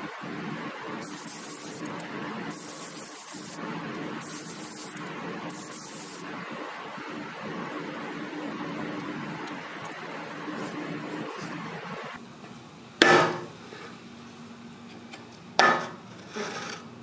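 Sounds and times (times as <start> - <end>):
spray gun hissing bursts: 1.0 - 6.5.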